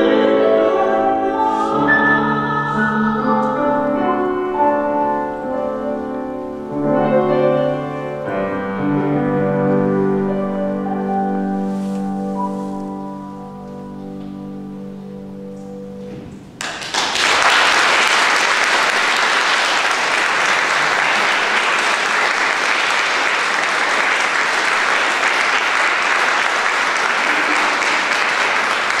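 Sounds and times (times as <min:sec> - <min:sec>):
piano chord sustaining: 0:00.0 - 0:16.4
audience applause: 0:16.6 - 0:29.0.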